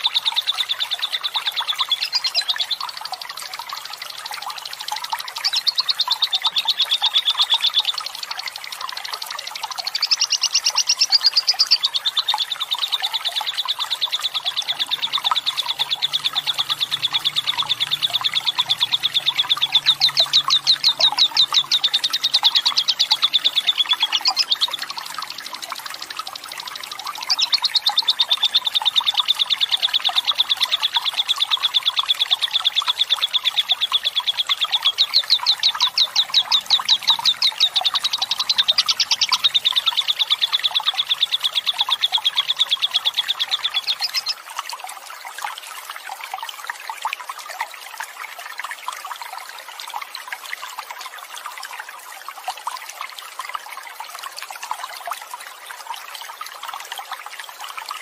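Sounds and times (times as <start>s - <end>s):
trickling water: 0.0s - 58.0s
bird chattering trill: 10.0s - 11.8s, 13.7s - 24.9s, 27.2s - 28.2s, 34.2s - 44.4s.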